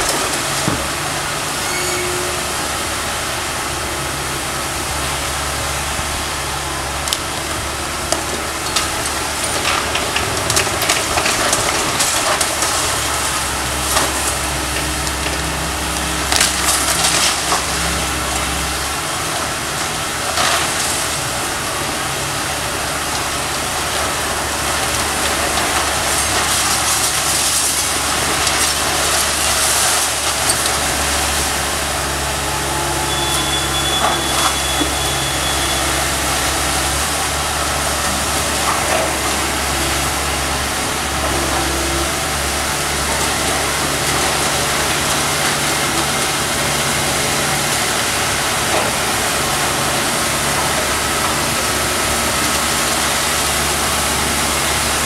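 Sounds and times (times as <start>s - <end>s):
debris crashing down: 0.0s - 1.5s, 7.2s - 55.0s
excavator running: 0.0s - 55.0s
timber cracking and splintering: 8.1s - 18.8s.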